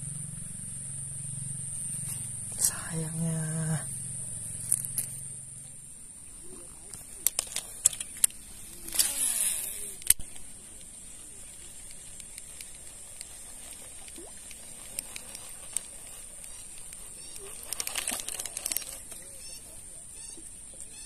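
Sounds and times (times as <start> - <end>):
steady high hiss: 0.0 - 21.0
reel whirring: 0.2 - 5.6, 6.3 - 20.3
fishing reel clicking: 7.2 - 10.4, 11.8 - 19.6.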